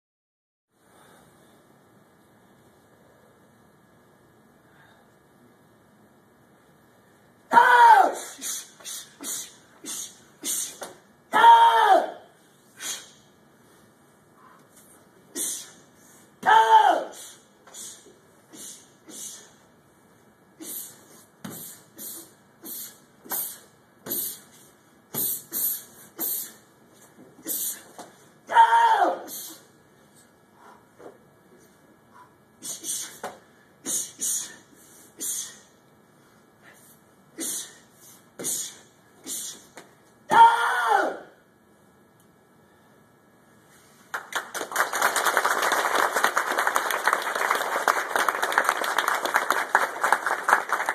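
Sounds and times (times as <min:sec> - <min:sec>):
audience applause: 0:44.2 - 0:50.9.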